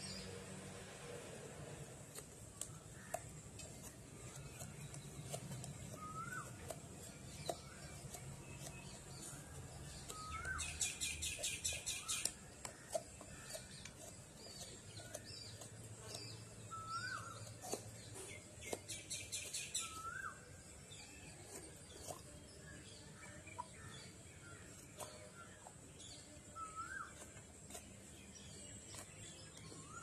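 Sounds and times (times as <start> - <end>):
small birds chirping: 0.0 - 30.0.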